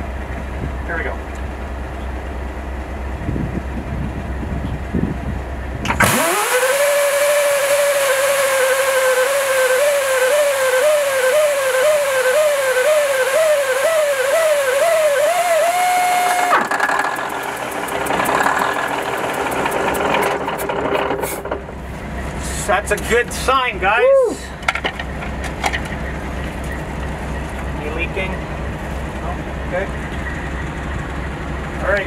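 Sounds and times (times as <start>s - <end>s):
starter motor cranking diesel: 5.6s - 23.7s
rapid ticking: 16.5s - 21.1s.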